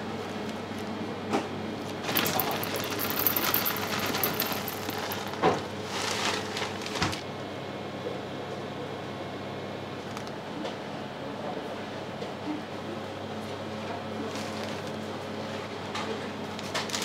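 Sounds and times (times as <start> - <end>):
kitchen equipment hum: 0.0 - 7.7
rustling: 2.0 - 7.2.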